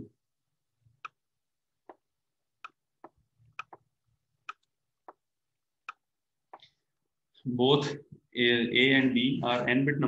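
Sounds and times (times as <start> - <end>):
pen stroke clicks: 2.6 - 5.2.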